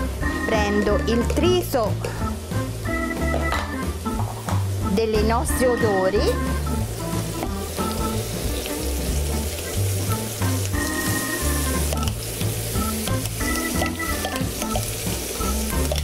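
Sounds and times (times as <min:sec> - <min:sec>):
background music with bass line: 0:00.0 - 0:16.0
meat sizzling in oil: 0:00.0 - 0:16.0.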